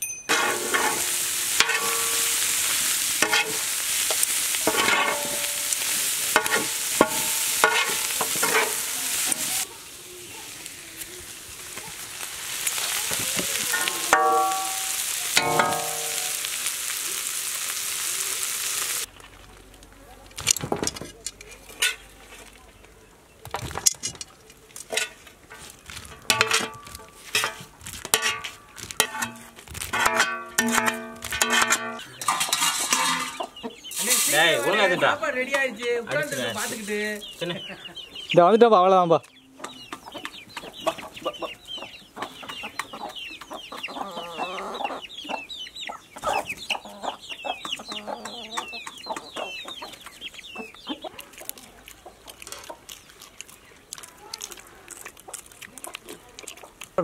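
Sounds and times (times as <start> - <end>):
metal ladle scraping iron pan: 0.3 - 9.6, 13.7 - 16.6, 24.9 - 34.7
hens clucking: 31.6 - 38.5, 39.3 - 57.0
chicks peeping: 33.3 - 34.5, 36.6 - 38.4, 39.2 - 57.0.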